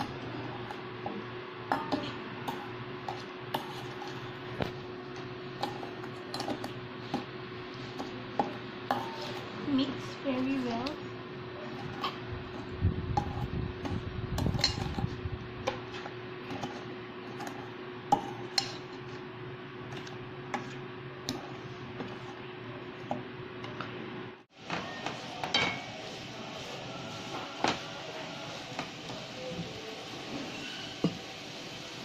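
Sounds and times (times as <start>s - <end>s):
metal spoon scraping steel bowl: 8.9s - 10.2s, 11.6s - 19.0s.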